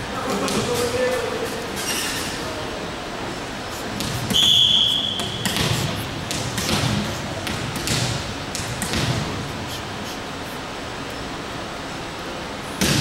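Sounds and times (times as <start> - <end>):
volleyball bouncing on wooden floor: 4.0 - 9.5
referee's whistle: 4.3 - 5.6.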